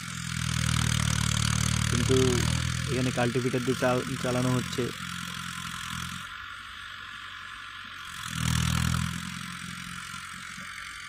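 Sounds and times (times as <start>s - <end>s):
tractor diesel engine under load: 0.0s - 6.3s.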